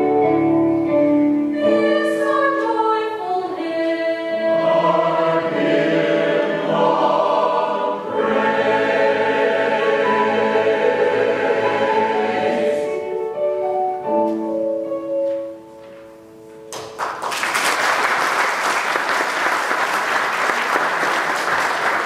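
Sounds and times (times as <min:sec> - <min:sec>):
mixed choir singing a hymn: 0:01.5 - 0:13.4
audience applause: 0:16.8 - 0:22.0.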